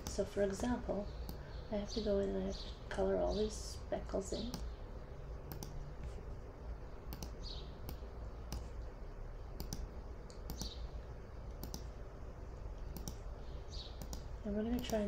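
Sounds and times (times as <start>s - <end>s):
computer mouse clicking: 4.5s - 4.7s, 5.5s - 6.2s, 7.1s - 8.8s, 9.6s - 10.8s, 11.5s - 11.9s, 12.9s - 13.2s, 14.0s - 15.0s.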